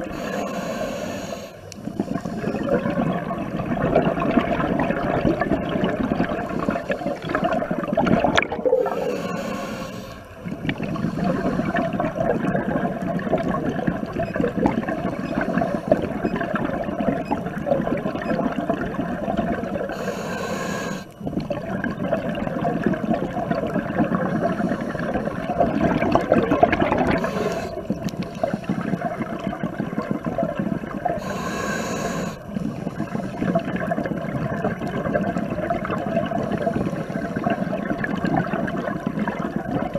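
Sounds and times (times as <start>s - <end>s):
hissing regulator inhale: 0.0s - 2.8s, 6.4s - 7.5s, 8.7s - 10.3s, 11.0s - 11.9s, 19.9s - 21.2s, 24.4s - 25.5s, 27.1s - 29.0s, 31.2s - 33.4s, 36.5s - 37.7s
bubbling regulator exhaust: 0.0s - 39.9s.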